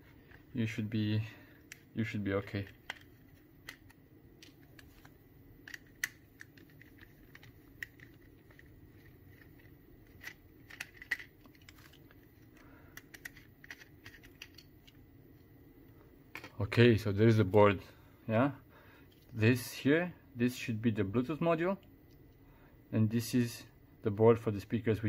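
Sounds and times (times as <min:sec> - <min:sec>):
plastic clicks and snaps: 0:02.8 - 0:08.6.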